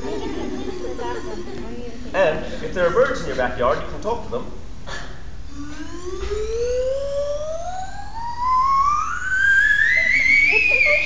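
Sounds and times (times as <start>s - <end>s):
rising slide whistle: 5.5s - 11.0s.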